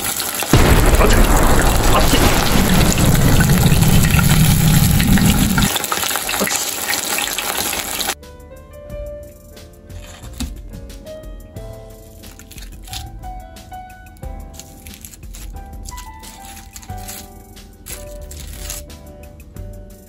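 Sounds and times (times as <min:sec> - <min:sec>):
fish deep-frying in hot oil: 0:00.0 - 0:08.2, 0:14.6 - 0:18.8
background music: 0:08.2 - 0:20.0.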